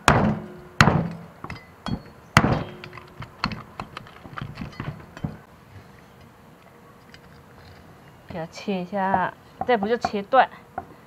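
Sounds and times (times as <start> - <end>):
blade tapping on board: 9.1 - 10.2.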